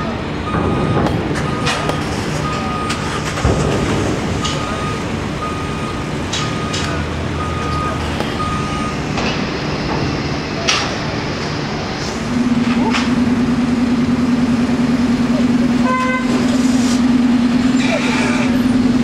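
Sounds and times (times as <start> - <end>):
diesel engine running: 0.0 - 19.0
electronic warning beeps: 0.4 - 3.2, 4.4 - 9.0
metallic knocks and clanks: 0.5 - 11.0.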